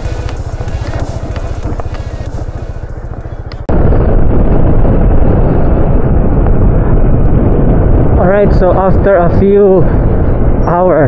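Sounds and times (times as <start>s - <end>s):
background music with beat: 0.0s - 3.7s
wind rush on microphone: 0.0s - 11.0s.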